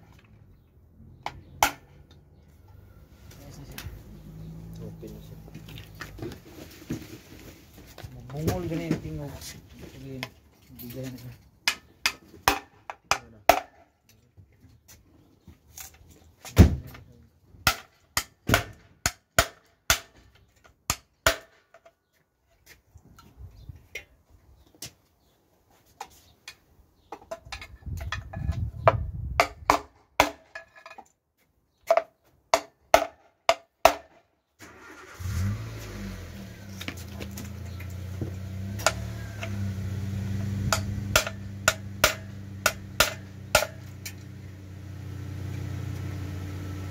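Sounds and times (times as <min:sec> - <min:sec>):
car engine idling: 0:34.7 - 0:46.9.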